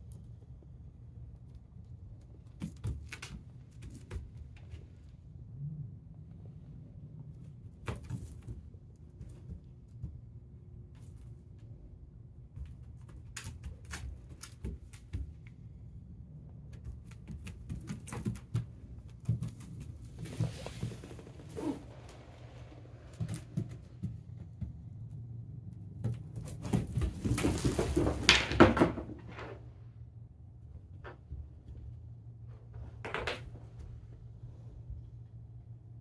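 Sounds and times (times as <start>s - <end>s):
puppy scuffling on mats: 17.0s - 24.8s, 26.0s - 28.3s
leash dragging: 19.7s - 24.0s.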